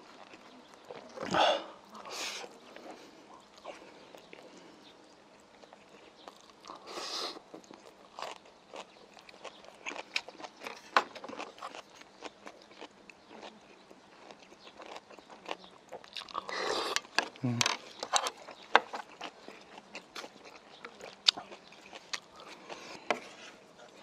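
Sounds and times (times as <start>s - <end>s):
close chewing sounds: 0.0s - 24.0s.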